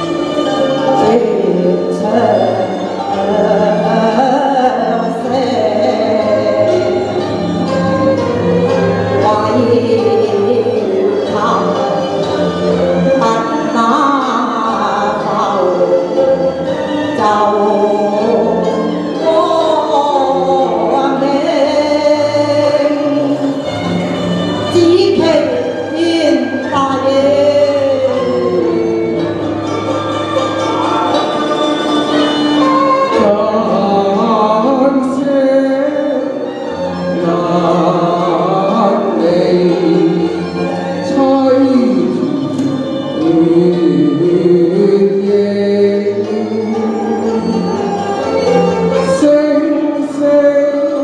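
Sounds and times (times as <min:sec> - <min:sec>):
woman singing operatic song: 0:00.0 - 0:23.7, 0:24.4 - 0:29.7, 0:32.2 - 0:51.0
instrumental accompaniment: 0:00.0 - 0:51.0
man singing into a microphone: 0:43.2 - 0:47.7.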